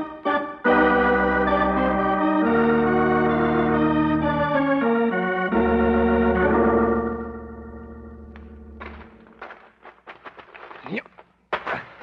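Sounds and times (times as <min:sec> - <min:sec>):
organ chords: 0:00.0 - 0:09.5.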